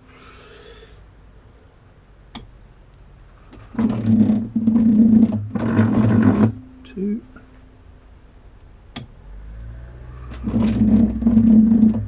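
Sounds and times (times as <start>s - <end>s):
low workshop hum: 0.0s - 12.0s
rasping cutting noise: 10.1s - 12.0s.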